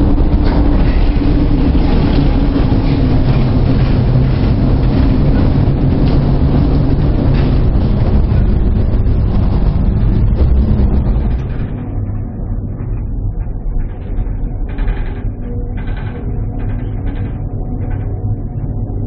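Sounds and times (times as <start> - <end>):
ship engine humming: 0.0 - 14.6
sea: 0.0 - 19.0.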